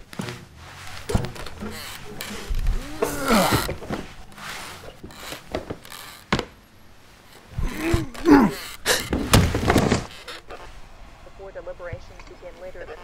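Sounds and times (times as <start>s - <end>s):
person groaning and grunting: 2.7s - 3.7s, 7.5s - 9.0s.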